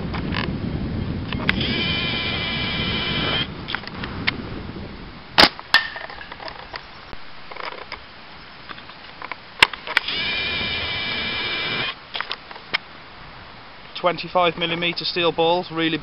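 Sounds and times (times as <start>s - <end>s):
steady pitched whine: 1.6s - 3.5s, 10.1s - 12.0s.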